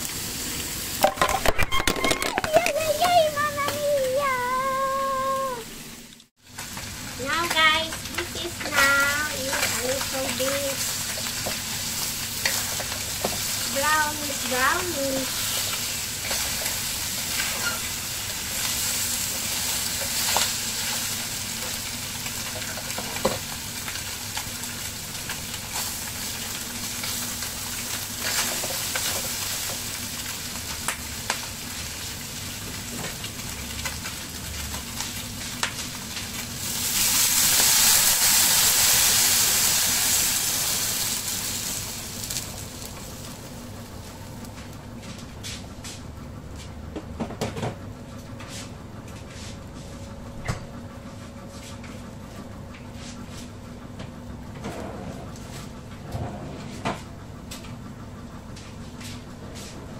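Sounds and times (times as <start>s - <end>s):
fish frying in hot oil: 6.4s - 44.5s.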